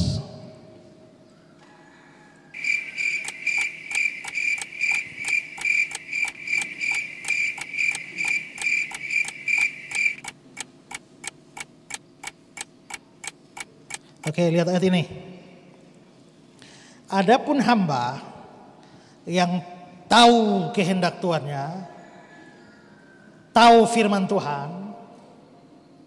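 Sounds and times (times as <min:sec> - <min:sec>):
even clicking beat: 0:02.6 - 0:13.7
pulsing high cricket chirp: 0:02.6 - 0:14.0.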